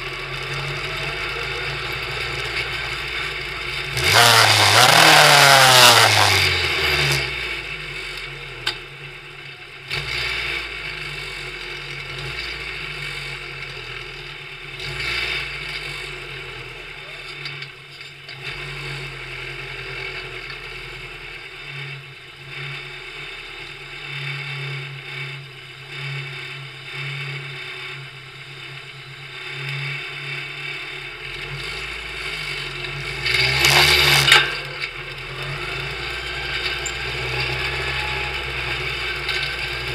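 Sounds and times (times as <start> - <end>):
race car engine revving and idling: 0.0 - 39.9.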